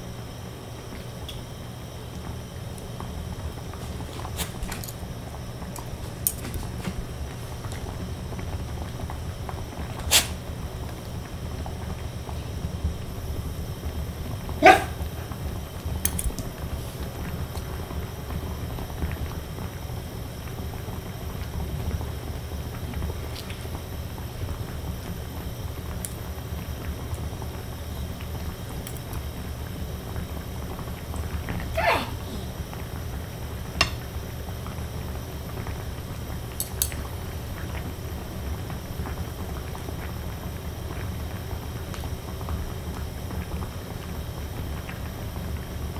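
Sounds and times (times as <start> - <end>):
gas burner rumble: 0.0 - 45.9
steady low hum: 0.0 - 45.9
dog barking: 14.6 - 15.0, 31.8 - 32.2.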